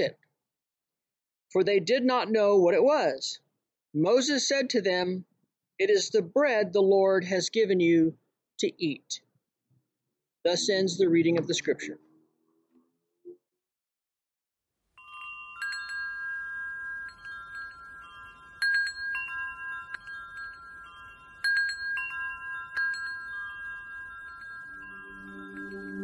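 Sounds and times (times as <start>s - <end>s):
metal wind chime ringing: 15.0s - 26.0s
low steady tones: 15.1s - 26.0s.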